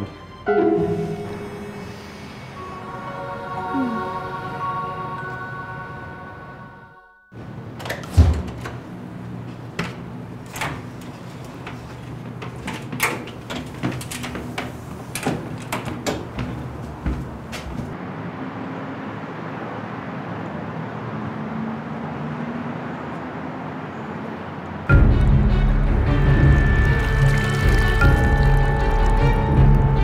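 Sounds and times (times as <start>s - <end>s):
footsteps: 11.2s - 18.0s.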